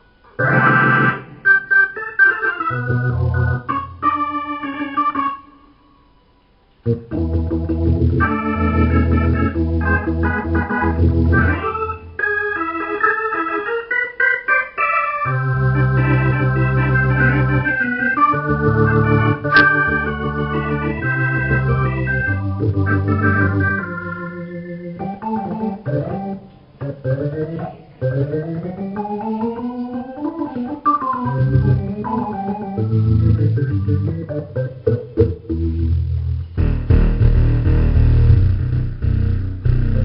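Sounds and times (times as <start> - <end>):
organ playing held chords: 0.0 - 40.0
low bass line: 35.1 - 40.0.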